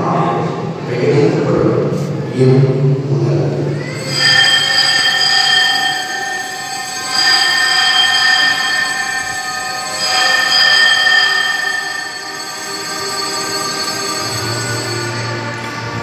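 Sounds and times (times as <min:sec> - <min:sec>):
metal bells ringing: 0:03.9 - 0:16.0.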